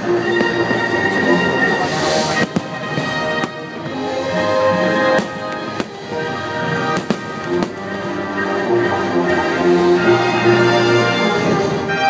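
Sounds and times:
fireworks bangs: 0.0s - 4.1s, 5.0s - 8.1s
orchestral music: 0.0s - 12.0s.

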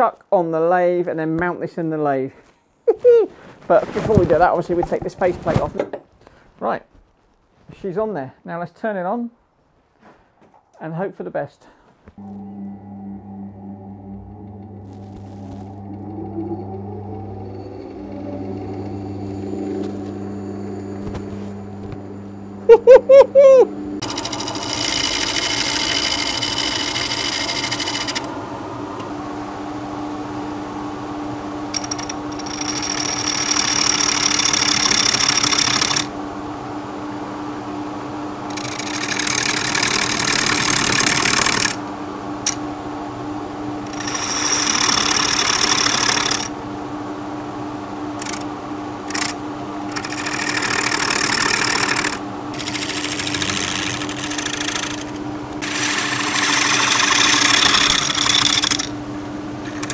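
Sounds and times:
wood lathe hum: 12.2s - 36.6s, 37.7s - 42.7s, 43.8s - 46.6s, 48.2s - 59.0s, 59.6s - 59.9s
turning tool cutting wood: 24.0s - 28.4s, 31.7s - 36.1s, 38.5s - 41.8s, 43.8s - 46.5s, 48.2s - 58.9s, 59.6s - 59.9s.

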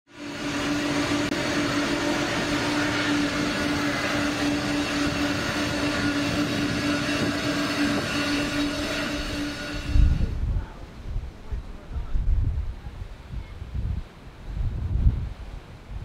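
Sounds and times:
jet taking off: 0.1s - 10.8s.

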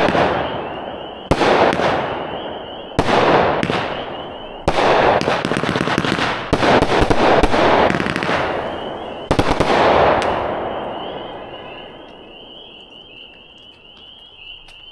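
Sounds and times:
firework reports: 0.0s - 13.6s
insects chirping: 10.6s - 14.9s.

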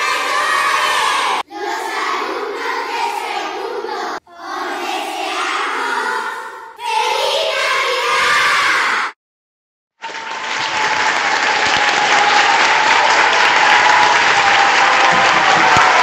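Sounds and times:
children calling out in chorus: 0.0s - 9.2s.

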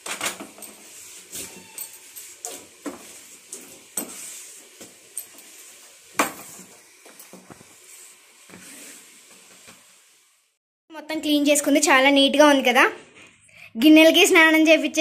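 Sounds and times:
cloth wiping wet countertop: 0.6s - 9.8s.

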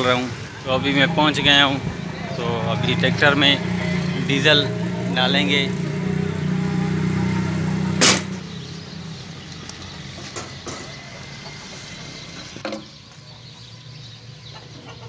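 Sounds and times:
engine running: 0.0s - 12.6s
loud sharp knock: 8.0s - 8.4s.

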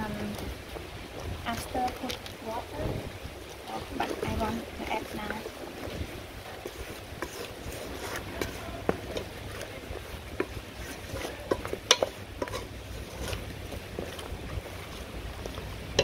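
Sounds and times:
wooden spatula scraping pot: 3.4s - 16.0s.

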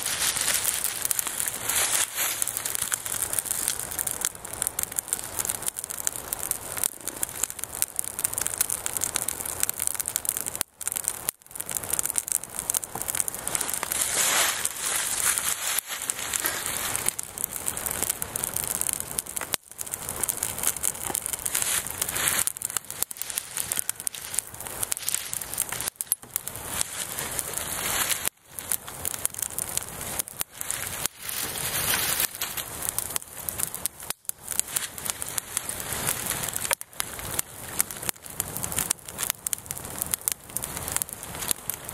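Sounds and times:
twig fire crackling and popping: 0.0s - 41.9s.

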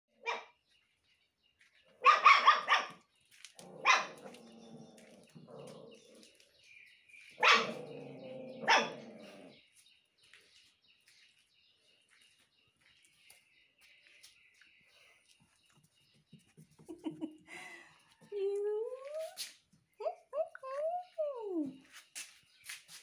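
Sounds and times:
dog barking: 0.2s - 0.6s, 2.0s - 3.0s, 3.7s - 4.4s, 7.4s - 8.0s, 8.6s - 9.1s.

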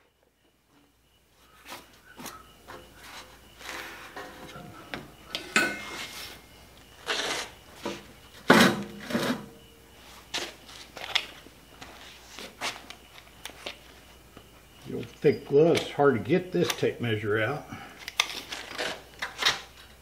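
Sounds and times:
metal clanks and scrapes: 5.4s - 6.5s.

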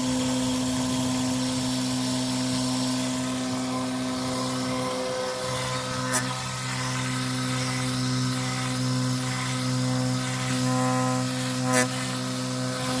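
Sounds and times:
small electric motor humming: 0.0s - 13.0s.

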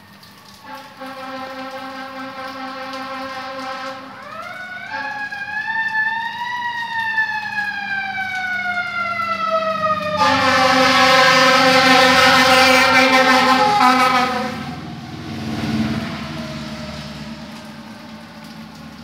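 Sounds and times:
fire engine mechanical siren: 0.0s - 19.0s
loud air horn blast: 0.6s - 5.4s, 10.1s - 15.0s.

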